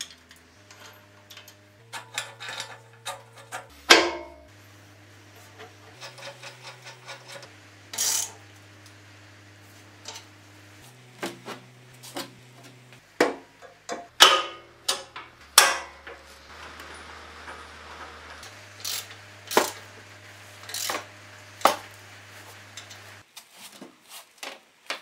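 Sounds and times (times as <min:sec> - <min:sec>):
sharp metal clanks and knocks: 0:00.0 - 0:04.5, 0:05.5 - 0:08.4, 0:13.2 - 0:20.0, 0:20.6 - 0:22.0
metal scrape: 0:00.5 - 0:08.5, 0:14.2 - 0:23.2.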